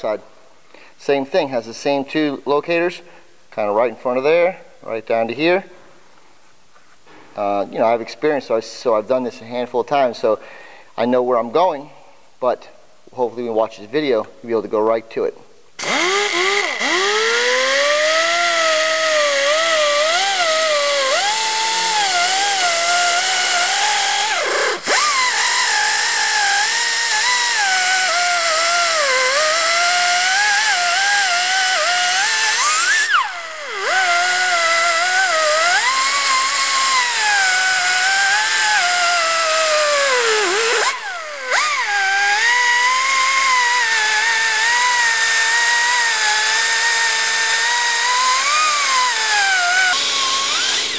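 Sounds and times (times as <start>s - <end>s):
die grinder whining: 15.8s - 50.9s.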